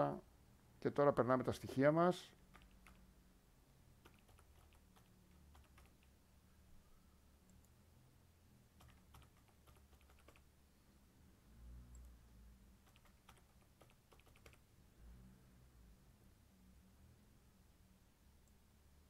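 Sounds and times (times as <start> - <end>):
typing on a keyboard: 2.4 - 3.0, 4.0 - 6.1, 8.8 - 10.5, 12.8 - 14.6.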